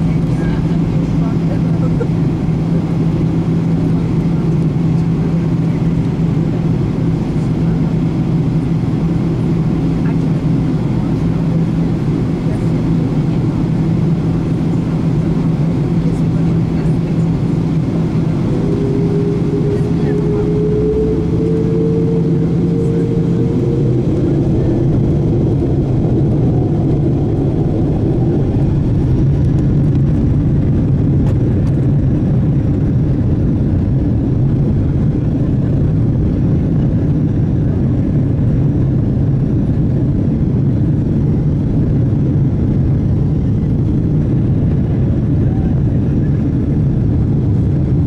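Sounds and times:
jet engines at take-off power: 0:00.0 - 0:48.0
wheels rumbling on runway: 0:00.0 - 0:48.0.

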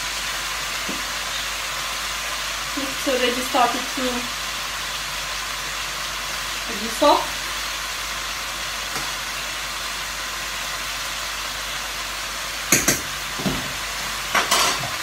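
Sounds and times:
vegetables sizzling in a wok: 0:00.0 - 0:15.0
utensils clattering against pans: 0:12.7 - 0:15.0.

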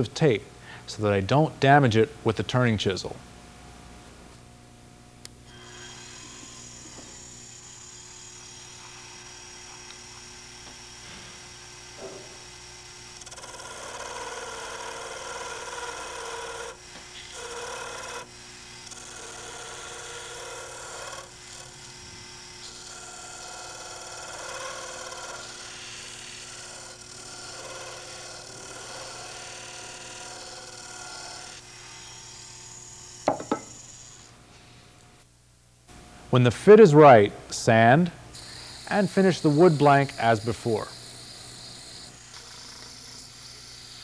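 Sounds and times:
chisel scraping spinning wood: 0:05.5 - 0:09.7, 0:22.6 - 0:31.7, 0:32.7 - 0:34.3, 0:38.4 - 0:44.0
lathe motor hum: 0:05.5 - 0:34.3, 0:38.4 - 0:44.0
sharp knocks: 0:33.3 - 0:33.7.

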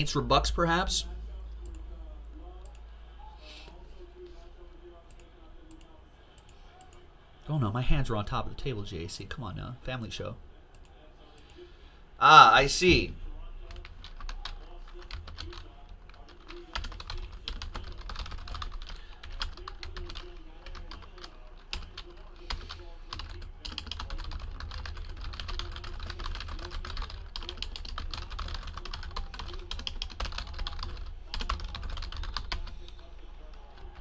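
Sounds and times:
typing on computer keyboard: 0:13.7 - 0:32.8.

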